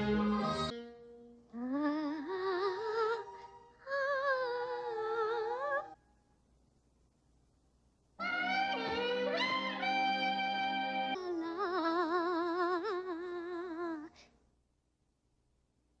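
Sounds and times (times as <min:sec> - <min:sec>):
orchestral music: 0:08.2 - 0:11.2.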